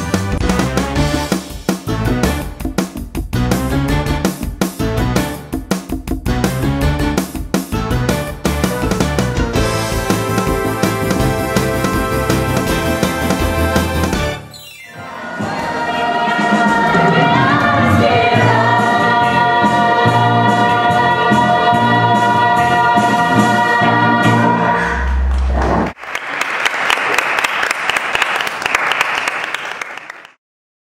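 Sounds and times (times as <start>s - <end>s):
ensemble singing with band: 15.0s - 25.2s
audience applauding: 25.1s - 30.4s.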